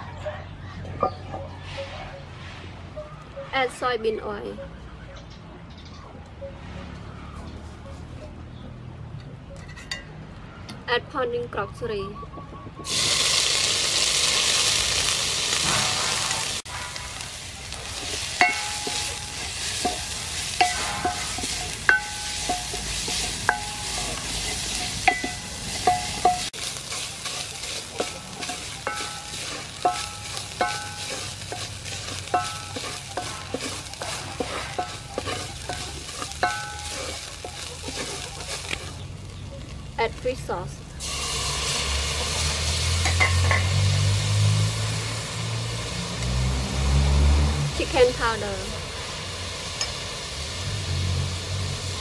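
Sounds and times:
spice paste sizzling in hot oil: 12.8 - 52.0
spoon tapping against pot: 25.1 - 26.5.

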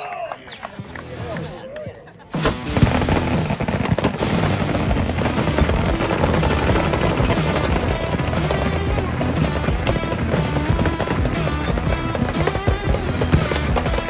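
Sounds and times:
rapid automatic gunfire: 2.6 - 14.0.

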